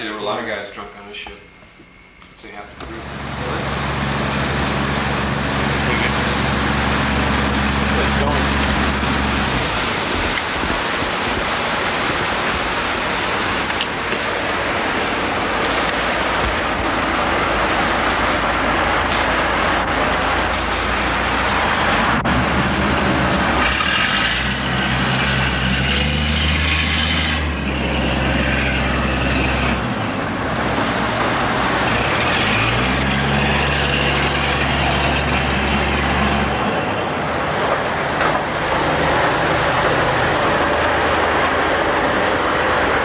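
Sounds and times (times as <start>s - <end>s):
boat engine running: 0.0s - 43.0s
rush of wind and water: 2.9s - 43.0s.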